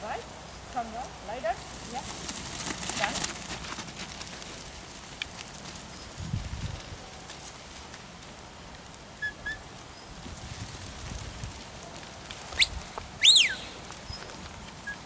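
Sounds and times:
wind rumble on microphone: 5.9 - 7.2, 9.5 - 15.0
rising whistles: 12.5 - 14.2.

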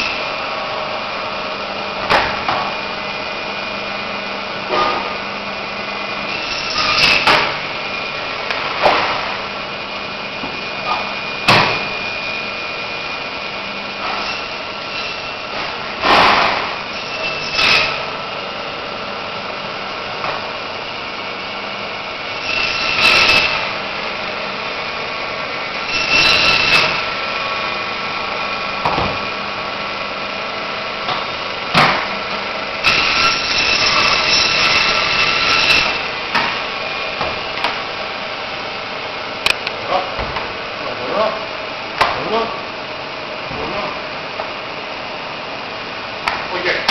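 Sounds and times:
band saw motor hum: 0.0 - 46.8
saw blade cutting bone: 22.4 - 23.6, 25.9 - 27.0, 32.8 - 36.0.

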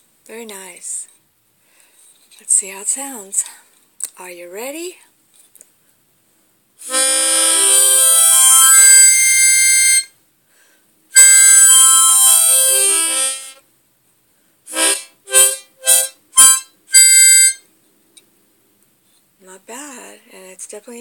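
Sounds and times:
harmonica notes and chords: 6.8 - 10.1, 11.2 - 13.6, 14.7 - 17.6.

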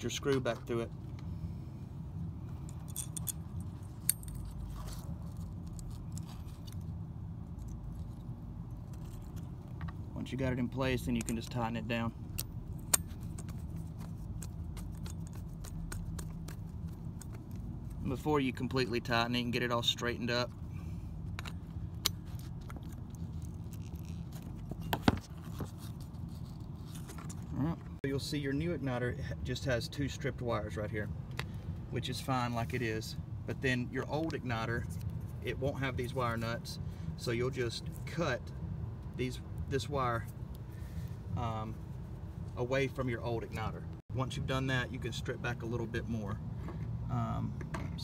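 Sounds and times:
steady low hum: 0.0 - 48.0
small metal clicks and clinks: 2.6 - 4.9.

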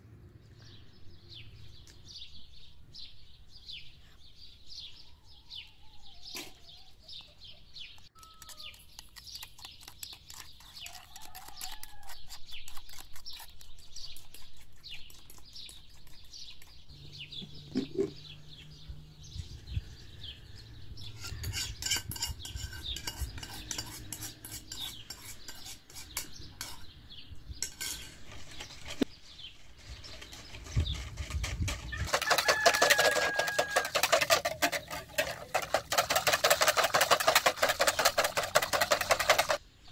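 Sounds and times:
utensils clinking against metal bowls: 21.2 - 26.9, 27.6 - 29.0, 30.0 - 39.6
whisk beating batter in plastic bowl: 21.5 - 26.8, 30.1 - 39.6.

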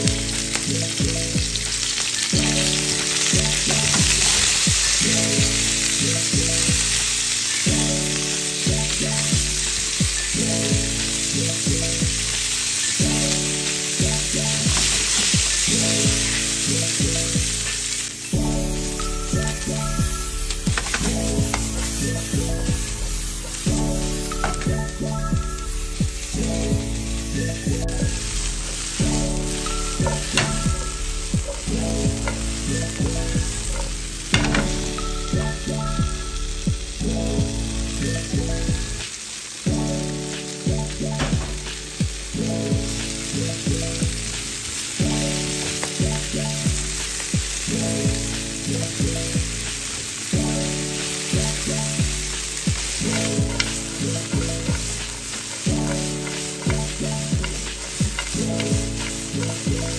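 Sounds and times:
background music with chords: 0.0 - 59.9
beans sizzling in hot oil: 0.0 - 59.9
spatula scraping a pan: 52.2 - 59.9.

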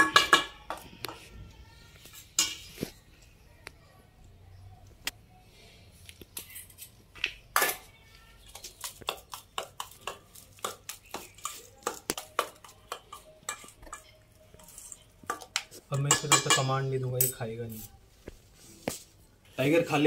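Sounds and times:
metal spoon scraping steel bowl: 8.6 - 17.4.

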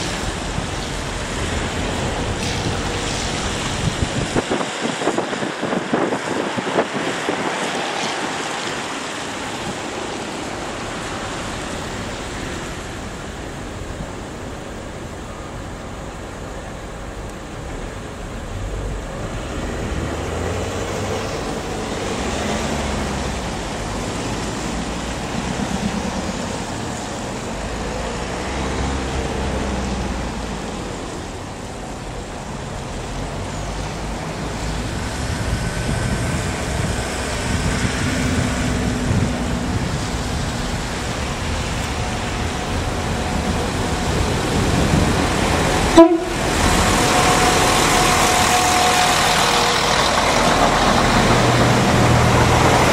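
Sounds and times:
diesel train engines and wheels: 0.0 - 52.9
road traffic noise: 0.0 - 52.9.

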